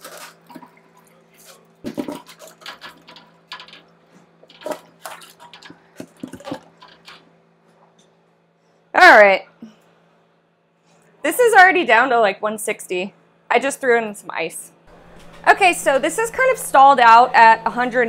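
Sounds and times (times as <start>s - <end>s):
electric pumps humming: 0.0s - 8.4s, 14.9s - 18.0s.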